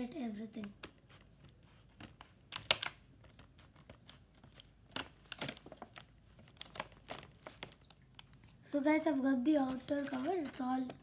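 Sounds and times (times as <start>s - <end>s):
plastic wrapping crinkling: 1.7s - 8.7s.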